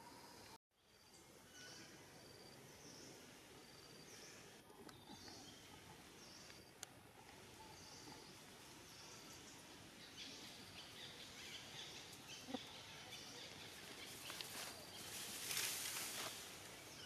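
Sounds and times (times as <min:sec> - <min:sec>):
birds chirping: 0:00.0 - 0:15.7
insects: 0:00.0 - 0:17.0.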